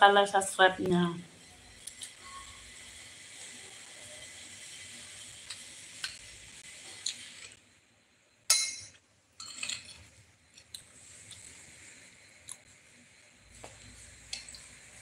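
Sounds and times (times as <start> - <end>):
quiet eating sounds: 3.4 - 7.6, 9.4 - 15.0
clink on ceramic plate: 8.5 - 9.7.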